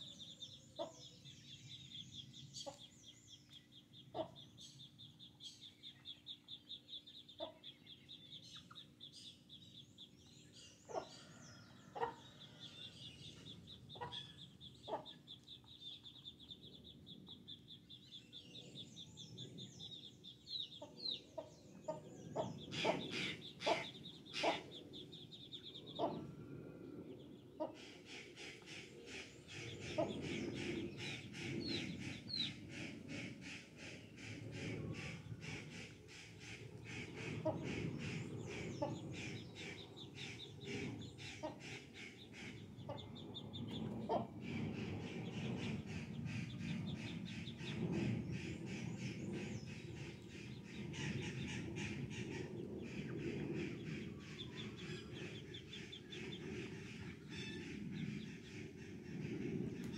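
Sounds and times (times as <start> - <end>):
chickens clucking: 13.4 - 15.2, 20.8 - 25.0, 27.6 - 57.3.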